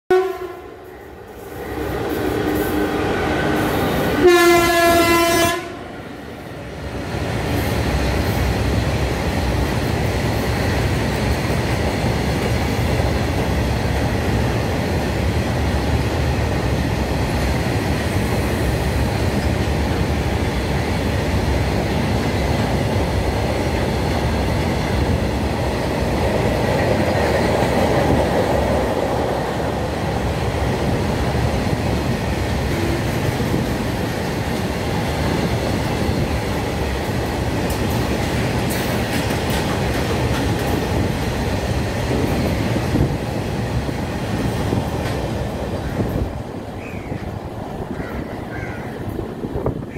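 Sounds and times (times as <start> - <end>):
freight train rumbling past: 0.1 - 49.9
wheels clattering on rails: 30.5 - 49.9.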